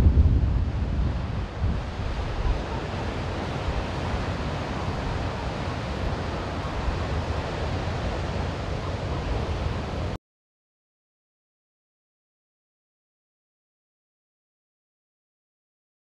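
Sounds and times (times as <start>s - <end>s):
ocean waves breaking: 0.0s - 10.2s
wind: 0.0s - 10.2s.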